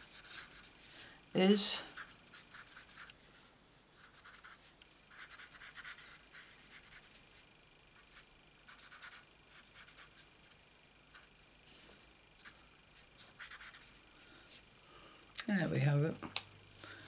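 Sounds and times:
marker scribbling on card: 0.0 - 0.7, 1.8 - 3.2, 4.0 - 7.2, 8.0 - 10.6, 13.2 - 14.0.

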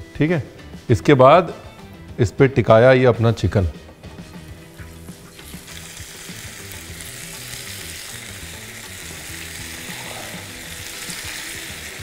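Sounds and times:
chicken sizzling in hot fat: 4.1 - 12.0.

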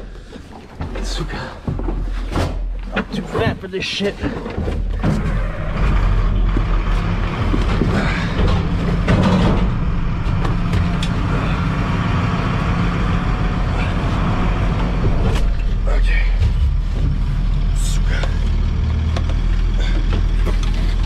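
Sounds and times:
knocks and rattles: 0.0 - 21.0
vehicle engine running: 4.2 - 21.0.

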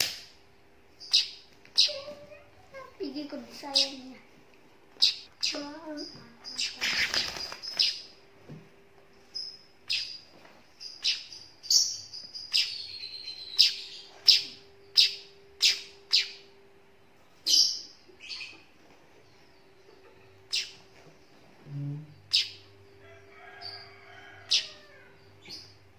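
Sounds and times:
bird chick chirping: 0.9 - 4.2, 4.9 - 8.2, 9.3 - 16.6, 17.2 - 25.9
wing flutter: 6.7 - 7.9.

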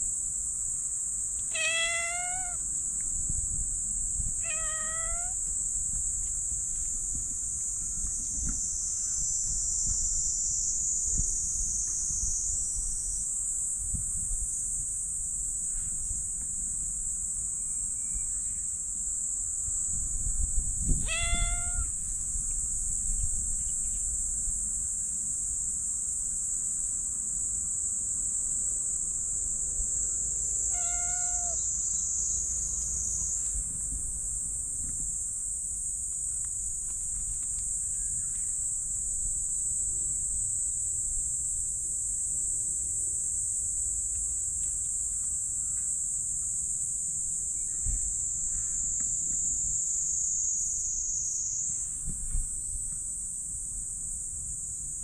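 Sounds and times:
cat meowing: 1.5 - 2.6, 4.4 - 5.4, 21.0 - 22.0, 30.7 - 31.6
high-pitched insect drone: 1.5 - 2.7, 4.4 - 5.6, 20.8 - 24.1, 30.0 - 33.5, 47.5 - 52.2.

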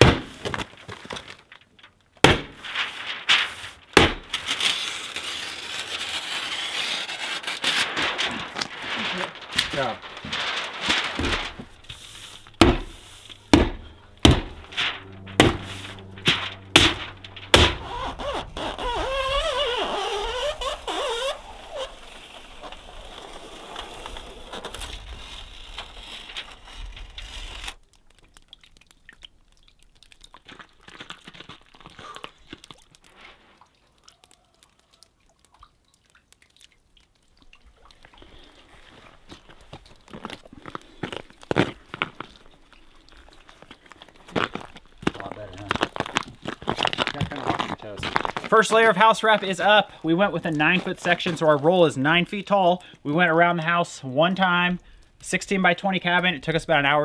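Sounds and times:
sharp knocks on wooden wall: 12.6 - 12.9, 13.5 - 14.6.

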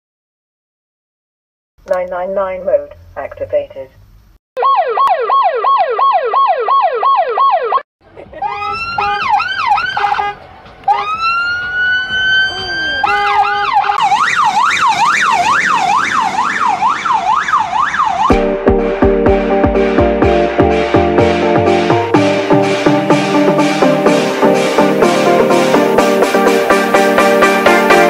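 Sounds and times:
emergency vehicle sirens: 4.6 - 18.5.

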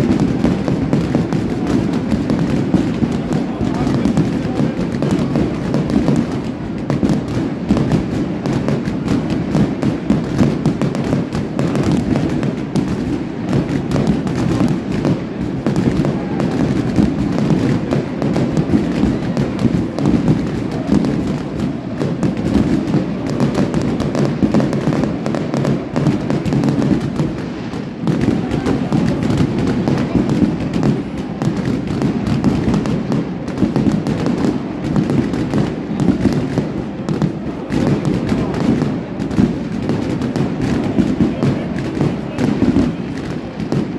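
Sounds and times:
fireworks bangs and crackles: 0.0 - 43.9.

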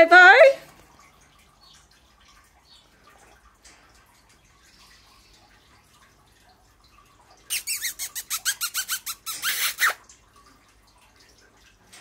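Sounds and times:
parakeet screech: 7.5 - 10.0
parakeet squawking: 7.5 - 10.0.

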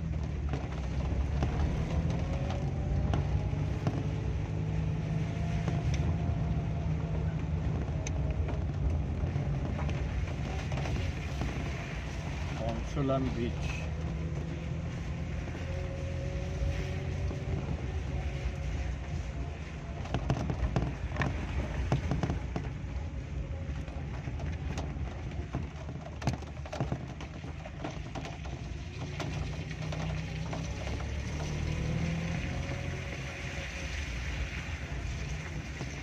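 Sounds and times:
engine and tyres on wet road: 0.0 - 36.0
scattered taps and knocks: 20.0 - 22.8, 24.4 - 31.7.

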